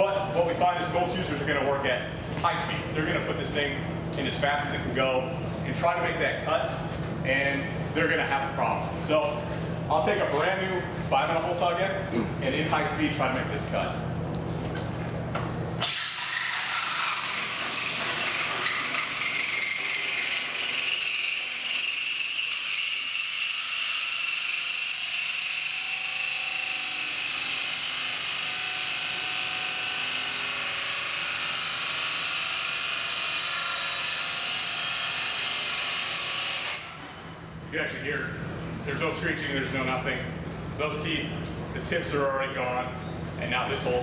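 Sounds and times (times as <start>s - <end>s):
hole saw screeching on steel: 15.8s - 37.0s.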